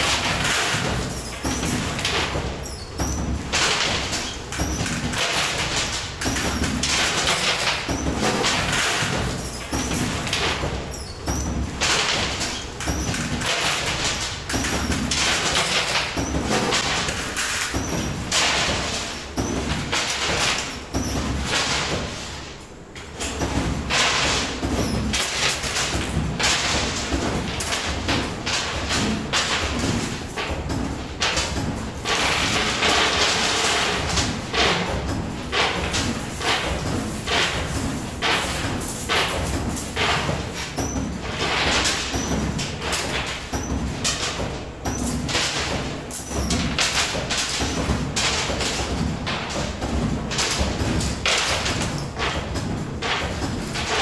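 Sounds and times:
coins thudding and clattering: 0:03.2 - 0:22.1, 0:23.6 - 0:30.5, 0:31.2 - 0:44.4, 0:45.0 - 0:49.6
coin pusher machine rumbling: 0:23.3 - 0:54.0.

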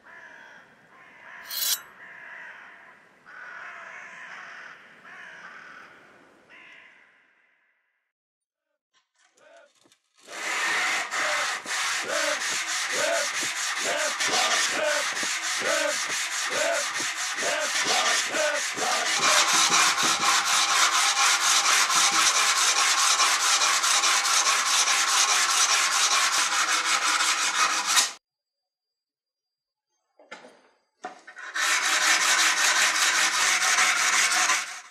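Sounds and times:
knife blade rubbing on sandpaper: 0:01.4 - 0:01.8, 0:10.8 - 0:28.2, 0:31.3 - 0:34.9.

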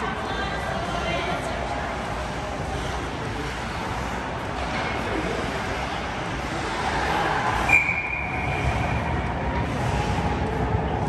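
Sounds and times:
game crowd noise: 0:00.0 - 0:11.0
referee whistle blast: 0:07.7 - 0:08.6.

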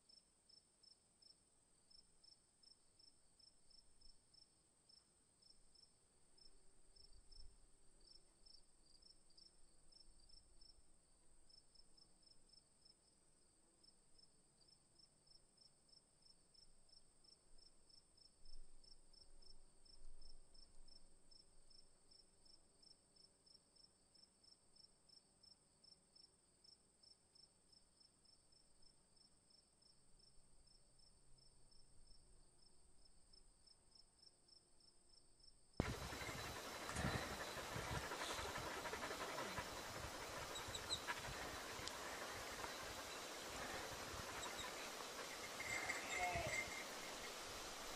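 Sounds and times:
insects chirping: 0:35.8 - 0:47.9.

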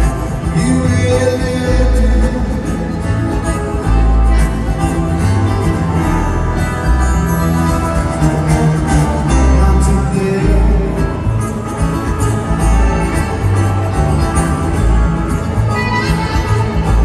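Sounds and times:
acoustic guitar: 0:00.0 - 0:17.0
electric guitar: 0:00.0 - 0:17.0
heavy bass: 0:00.0 - 0:17.0.

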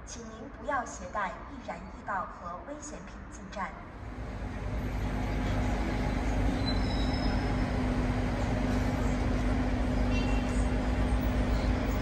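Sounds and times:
road traffic rumble: 0:03.8 - 0:12.0.

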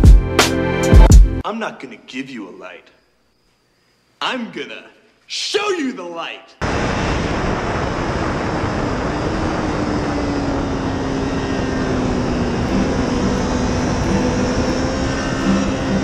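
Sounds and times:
wind rush: 0:06.6 - 0:16.0
motorcycle engine: 0:08.7 - 0:16.0.

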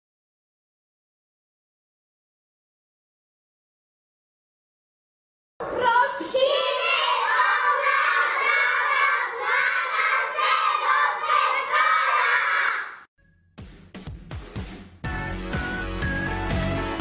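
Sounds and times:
children shouting in chorus: 0:05.7 - 0:13.1.

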